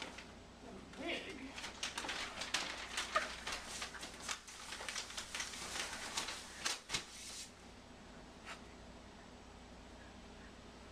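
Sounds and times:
faint steady hiss: 0.0 - 10.9
clothing rustling and scraping: 1.6 - 7.6.

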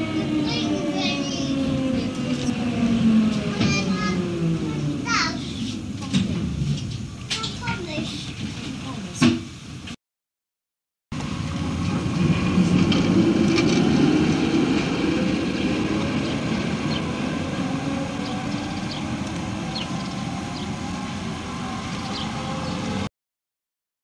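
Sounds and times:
tram wheels rumbling on rails: 0.0 - 10.0, 11.1 - 23.1.

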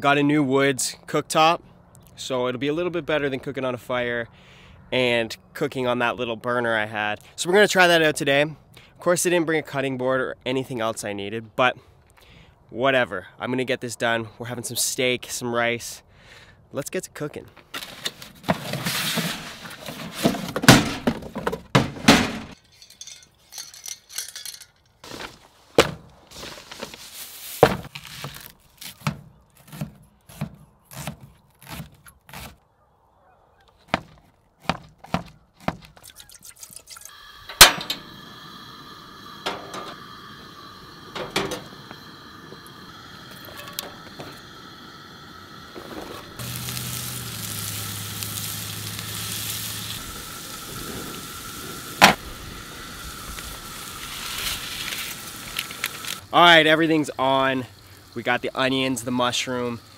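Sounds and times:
cardboard box rustling: 25.0 - 29.1
camp stove burner hiss: 37.0 - 59.9
food sizzling in a frying pan: 46.3 - 56.3.

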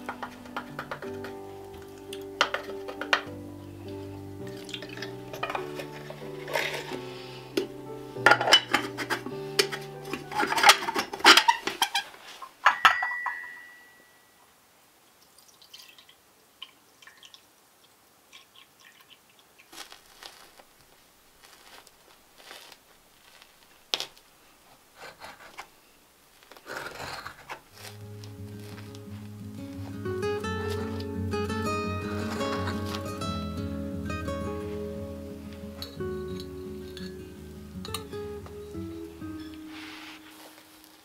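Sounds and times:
background music: 0.0 - 11.4, 27.8 - 41.0
china and cutlery clinking: 2.1 - 3.3, 4.6 - 7.0, 7.6 - 12.0, 12.6 - 14.1, 32.0 - 33.0, 35.8 - 38.6
ringing clink: 12.7 - 14.4
knife scraping through cake: 25.0 - 25.7.

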